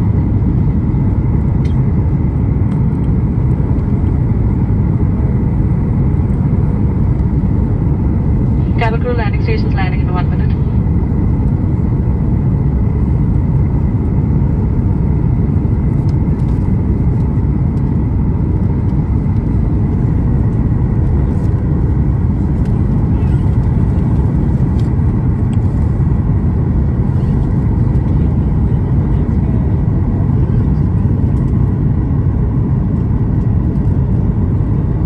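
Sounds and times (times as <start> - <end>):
airplane cabin rumble: 0.0 - 35.0.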